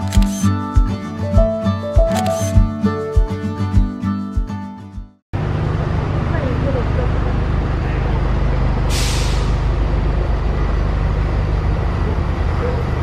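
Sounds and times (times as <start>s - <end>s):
vehicle engine rumbling: 5.4s - 13.0s
sharp hiss of air: 8.9s - 9.6s.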